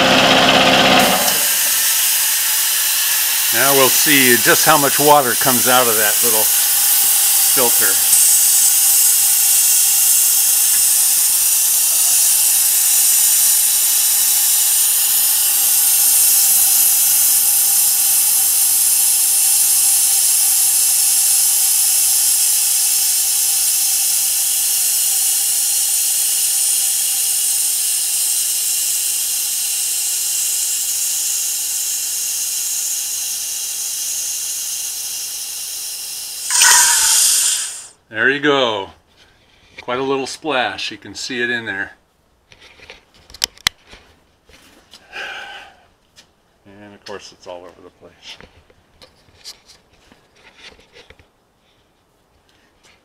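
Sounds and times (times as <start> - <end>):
compressed air hissing: 1.1 - 38.0.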